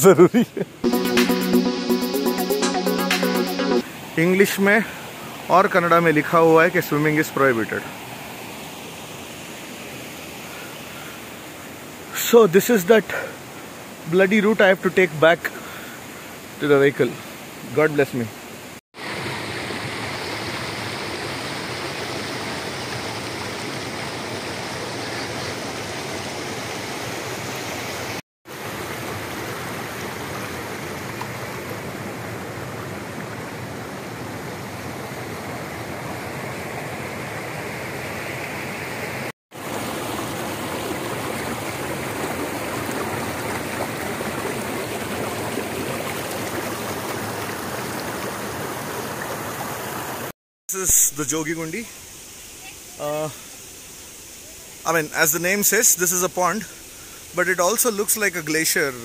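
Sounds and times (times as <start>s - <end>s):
stream water babbling over rocks: 3.8s - 58.9s.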